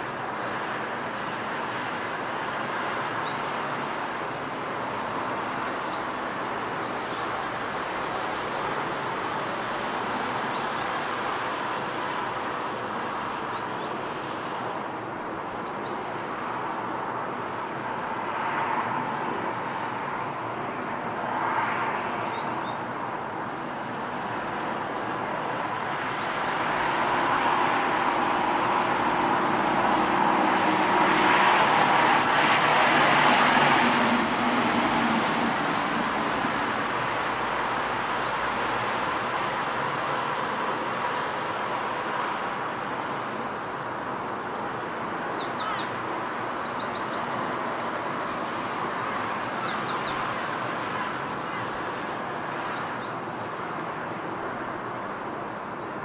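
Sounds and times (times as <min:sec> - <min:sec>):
traffic noise: 0:00.0 - 0:56.0
vehicle passing: 0:26.1 - 0:38.7.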